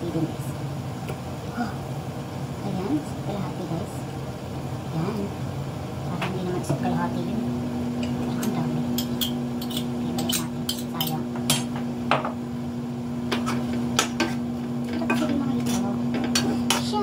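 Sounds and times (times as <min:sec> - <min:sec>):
steady low hum: 0:00.0 - 0:17.0
metal spoon scraping a pot: 0:09.0 - 0:11.2.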